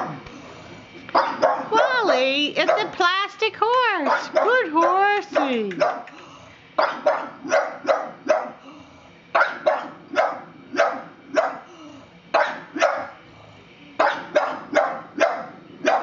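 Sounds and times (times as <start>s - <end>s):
dog barking: 1.1s - 1.8s, 2.6s - 3.0s, 4.0s - 6.1s, 6.8s - 8.6s, 9.4s - 11.7s, 12.3s - 13.2s, 14.0s - 16.0s.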